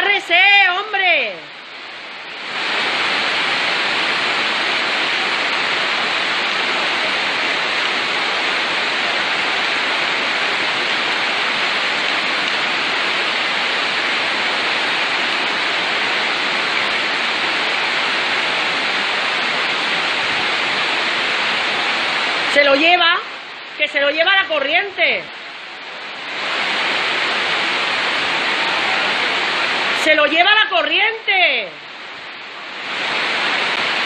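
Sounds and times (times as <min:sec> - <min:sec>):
heavy rain: 0:00.0 - 0:34.0
surging floodwater: 0:00.0 - 0:34.0.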